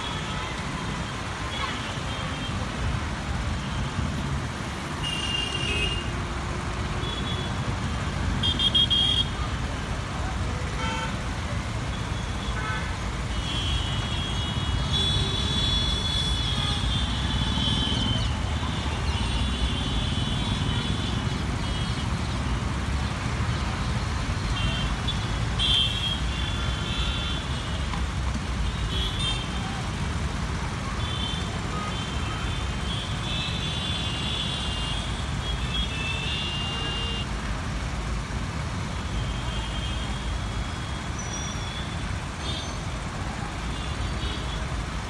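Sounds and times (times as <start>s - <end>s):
traffic rumble: 0.0s - 45.0s.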